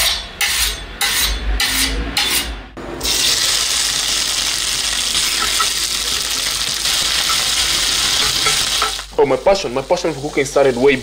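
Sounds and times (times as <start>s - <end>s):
chicken sizzling in a pan: 3.0s - 11.0s.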